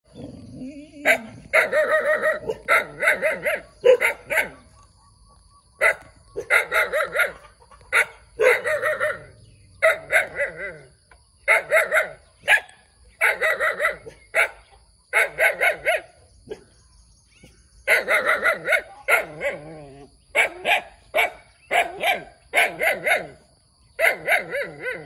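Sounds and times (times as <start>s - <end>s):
puppy barking: 1.0s - 4.8s, 5.8s - 10.9s, 11.5s - 16.6s, 17.9s - 19.7s, 20.3s - 23.4s, 24.0s - 25.0s.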